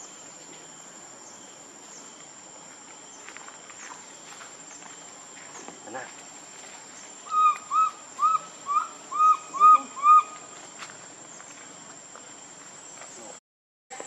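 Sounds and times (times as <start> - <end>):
animal whistled calls: 7.3 - 10.4.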